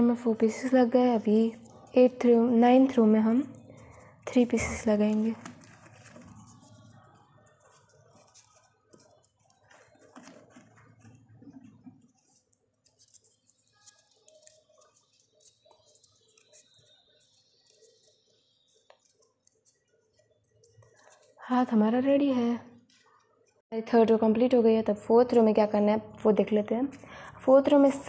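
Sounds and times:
paper ticks and rustles: 3.2 - 21.5.

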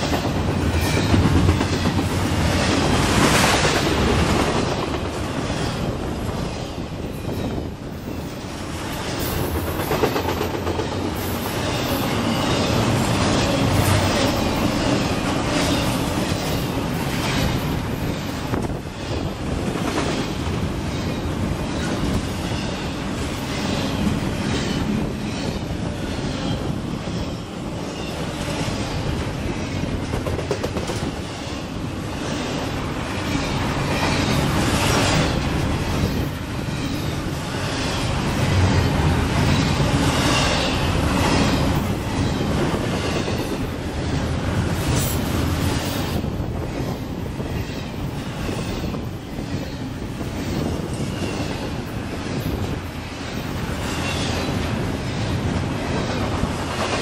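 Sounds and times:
freight train rumbling past: 0.0 - 57.0
wheels clacking over rails: 9.3 - 17.7.

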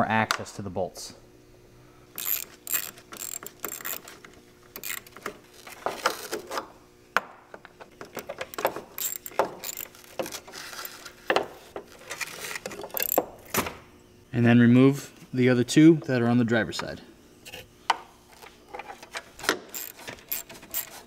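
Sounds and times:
hand ratchet clicking: 2.2 - 4.2, 4.8 - 5.3, 8.0 - 10.3, 12.8 - 13.2, 19.7 - 21.0.

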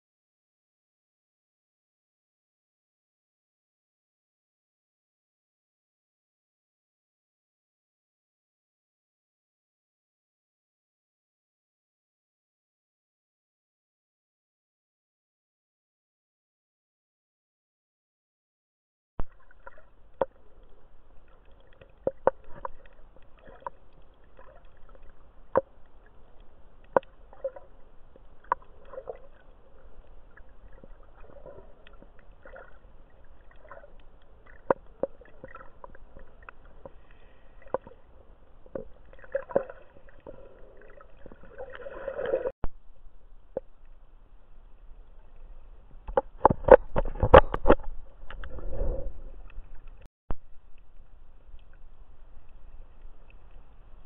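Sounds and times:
underwater sharp clicks: 19.2 - 27.7, 28.4 - 29.4, 46.0 - 48.6
water churning: 19.2 - 42.5
faint steady hum: 19.2 - 54.0.

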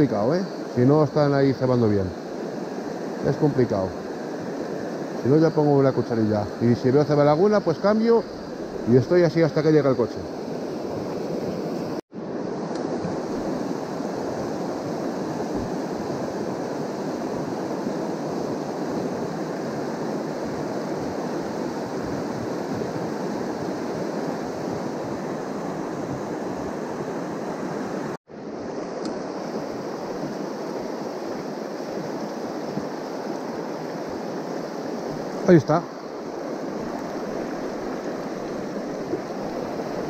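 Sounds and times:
river rapids rushing over rocks: 29.5 - 40.0.

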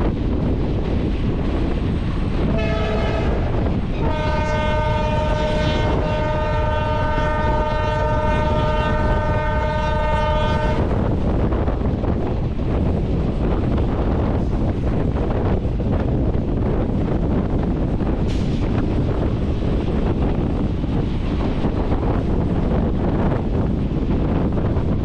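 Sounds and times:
moving train rumble: 0.0 - 25.0
wind at window: 0.0 - 25.0
train air horn: 2.5 - 10.9.

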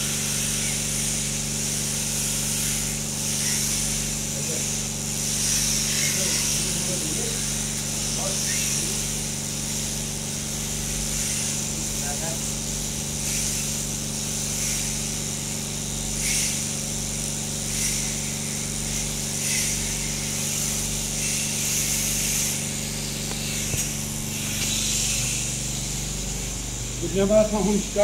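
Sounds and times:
shearing handpiece motor hum: 0.0 - 28.0
cutters hissing through fleece: 0.2 - 9.9, 18.9 - 28.0.

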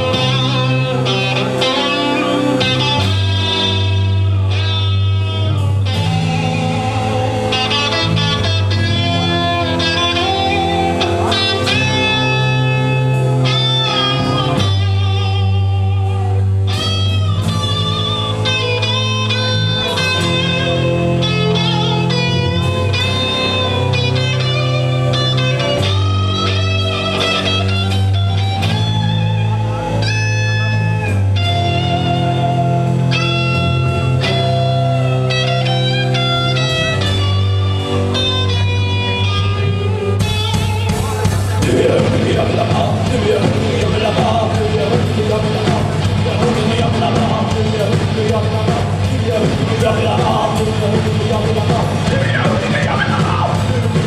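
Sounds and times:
electric guitar: 0.0 - 54.0
live band playing instrumental: 0.0 - 54.0.

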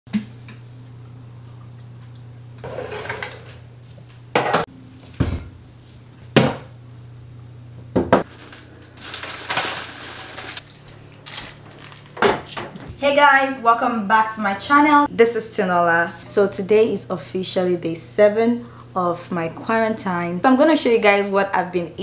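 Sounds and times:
steady low hum: 0.2 - 22.0
rustling: 8.3 - 12.1.

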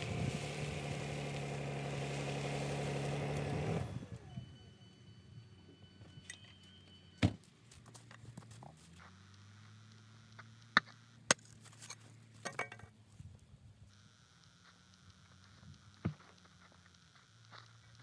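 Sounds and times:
faint low hum: 3.8 - 18.0.

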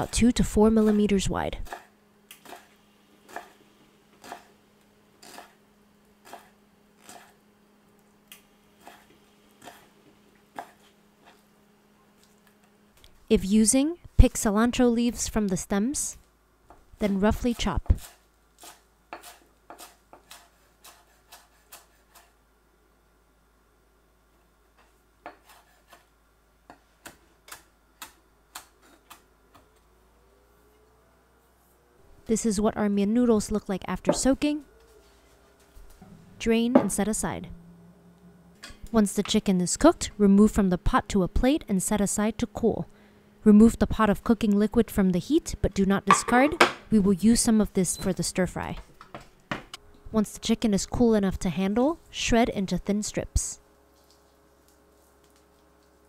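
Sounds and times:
knife slicing mushrooms: 17.5 - 22.4.

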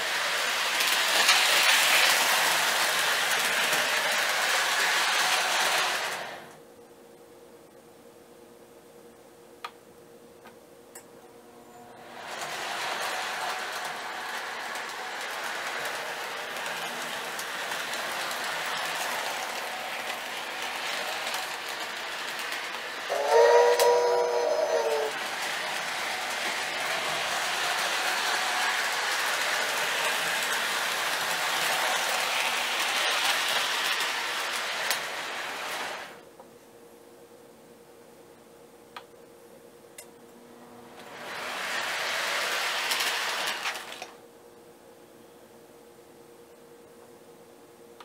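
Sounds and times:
model train wheels clicking on rails: 0.0 - 6.6, 11.9 - 36.2, 41.0 - 44.2.

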